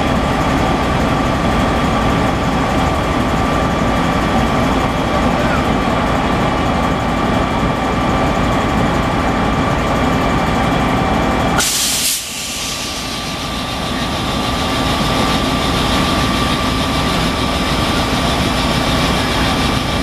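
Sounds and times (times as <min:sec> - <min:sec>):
electric locomotive hum and whine: 0:00.0 - 0:20.0
compressed-air hiss: 0:11.6 - 0:13.4.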